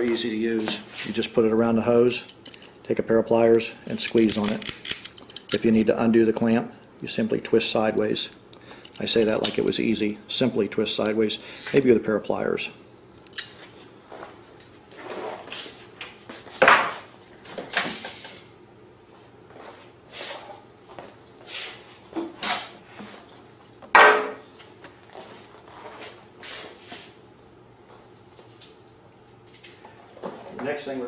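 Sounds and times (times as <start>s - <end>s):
hand tools clinking and rustling: 2.1s - 2.8s, 3.9s - 5.7s, 8.2s - 10.3s.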